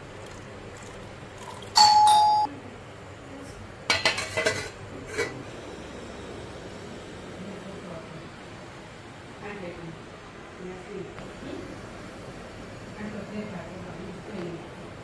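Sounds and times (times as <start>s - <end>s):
two-note chime: 1.8s - 2.5s
steel plate clattering on pot: 3.9s - 5.4s.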